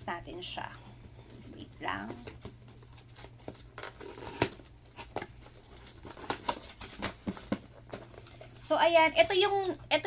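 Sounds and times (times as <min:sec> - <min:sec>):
paper rustling: 0:01.5 - 0:08.5.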